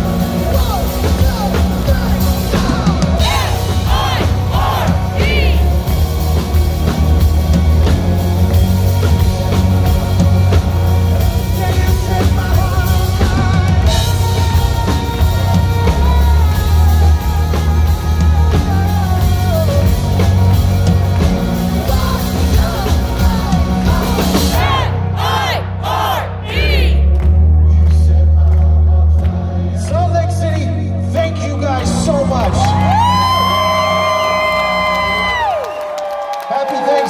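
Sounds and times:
man singing: 0:00.0 - 0:05.7, 0:09.1 - 0:24.9
drum kit: 0:00.0 - 0:36.3.

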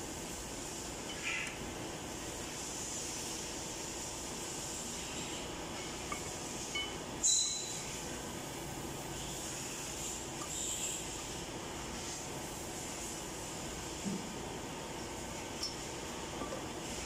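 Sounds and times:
steady workshop hiss: 0:00.0 - 0:17.0.

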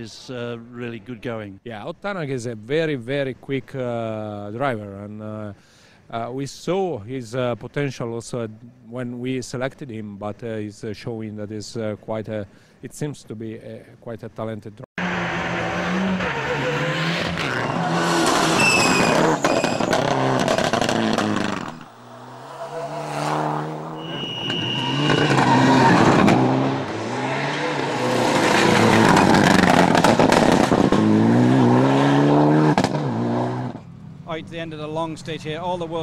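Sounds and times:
rally car engines revving: 0:15.0 - 0:36.0.

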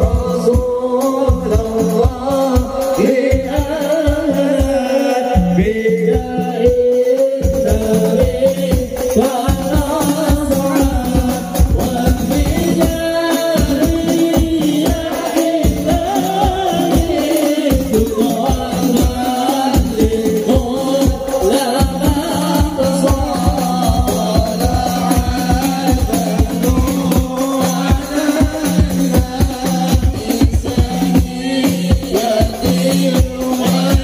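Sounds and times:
amplified lead voice: 0:00.0 - 0:34.0
frame drums beaten by hand: 0:00.0 - 0:34.0
men singing devotional song: 0:00.0 - 0:34.0.

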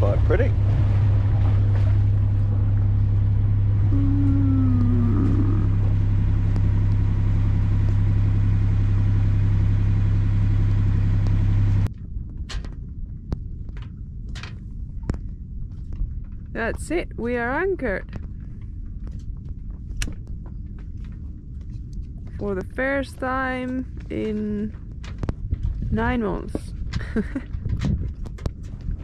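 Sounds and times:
boat engine droning: 0:00.0 - 0:11.9.

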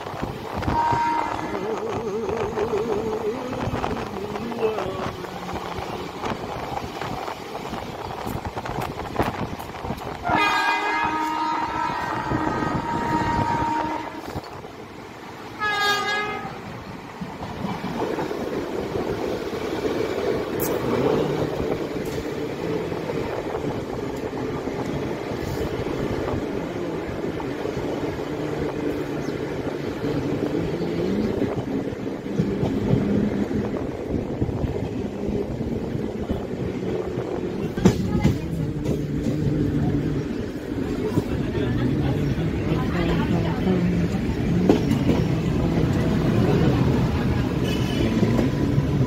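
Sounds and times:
train rumbling along track: 0:00.0 - 0:49.0
train horn blasts: 0:00.6 - 0:02.0, 0:10.2 - 0:14.5, 0:15.6 - 0:16.6, 0:47.6 - 0:48.4.

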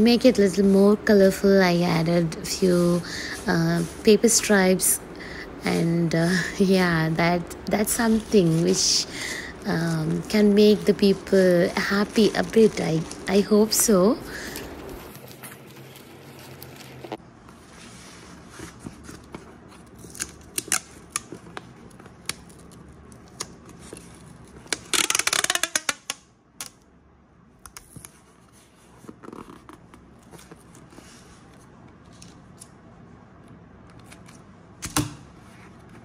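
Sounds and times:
tape tearing off a roll: 0:24.7 - 0:26.2.

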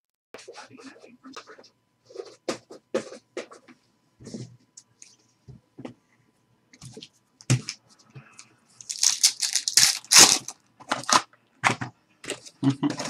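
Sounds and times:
foil wrapper tearing and crinkling: 0:08.8 - 0:11.3.

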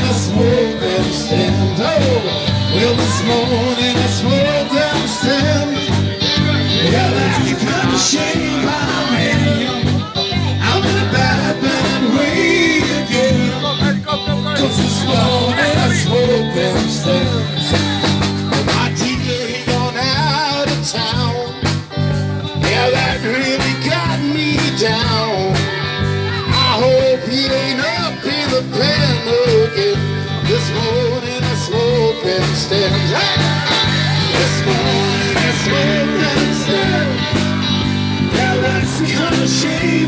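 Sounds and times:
blues-rock band playing: 0:00.0 - 0:40.0.

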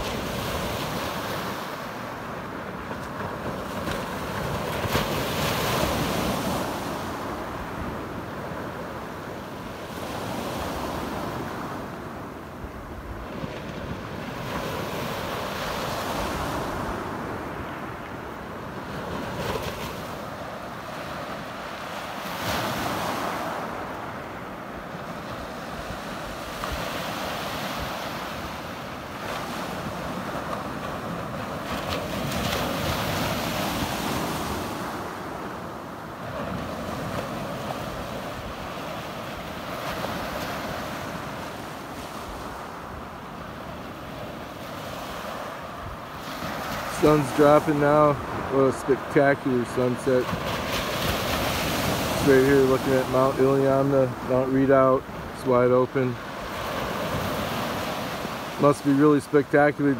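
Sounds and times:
waves washing up pebble beach: 0:13.3 - 0:59.9.

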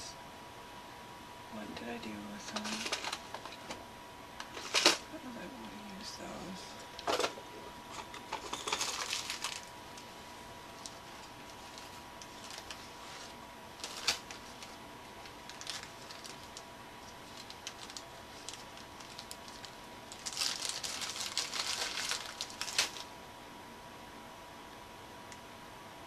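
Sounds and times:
plastic bag crinkling: 0:02.5 - 0:03.7, 0:06.8 - 0:10.1, 0:10.8 - 0:23.1.

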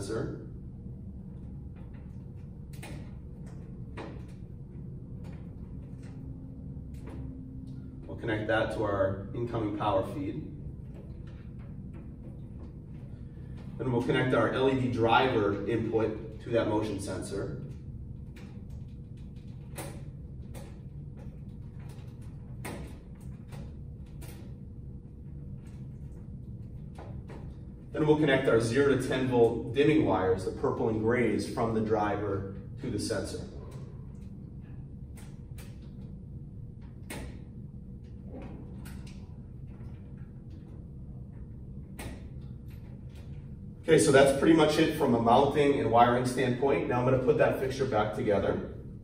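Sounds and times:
low hum: 0:00.0 - 0:49.0
wires and connectors clicking: 0:01.3 - 0:08.1, 0:17.2 - 0:27.9, 0:33.6 - 0:43.7.

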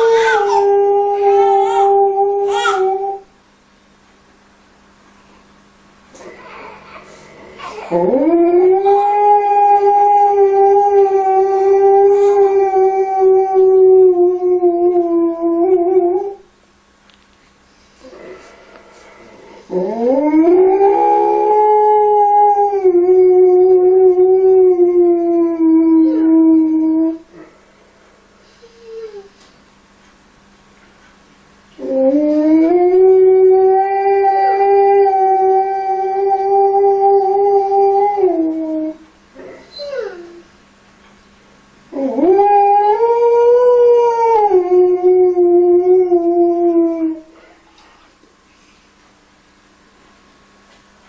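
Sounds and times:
dog howling: 0:00.0 - 0:03.3, 0:07.6 - 0:16.4, 0:19.7 - 0:27.2, 0:31.8 - 0:40.5, 0:41.9 - 0:47.3.

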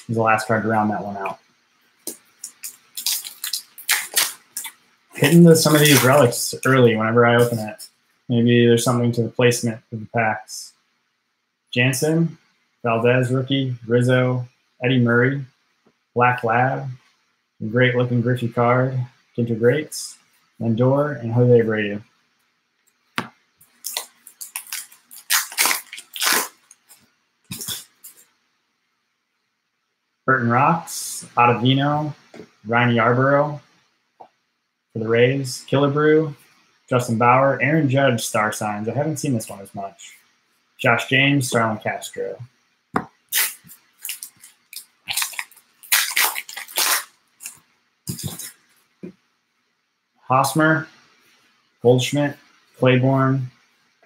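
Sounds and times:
foil wrapper crinkling and tearing: 0:02.4 - 0:06.3, 0:23.8 - 0:26.8, 0:43.3 - 0:48.6.

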